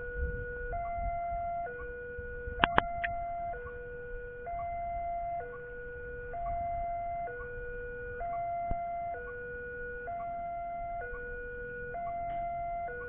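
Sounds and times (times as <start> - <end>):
two-tone level crossing alarm: 0.0 - 13.0
sharp clicks: 2.6 - 3.2.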